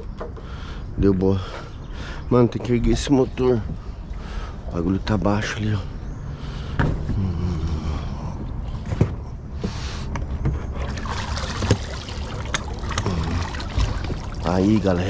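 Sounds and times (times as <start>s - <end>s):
water splashing and trickling: 1.3s - 5.8s, 10.6s - 15.0s
knocks and clunks from mount: 6.8s - 7.2s.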